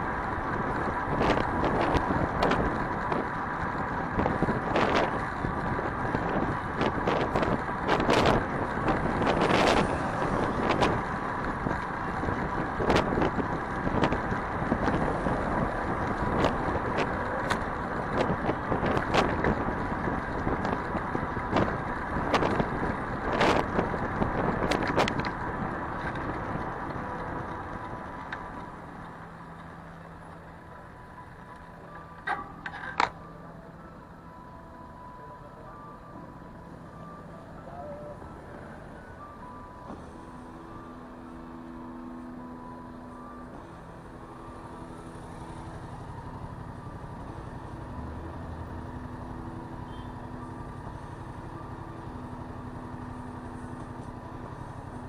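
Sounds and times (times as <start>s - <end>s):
wind noise: 0.0s - 28.6s
street traffic: 0.0s - 55.0s
bicycle knocks and rattles: 32.2s - 33.2s.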